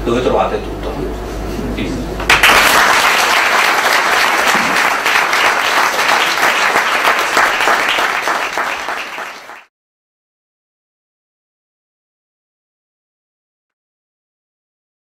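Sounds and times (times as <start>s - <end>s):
audience applauding: 2.3s - 9.7s.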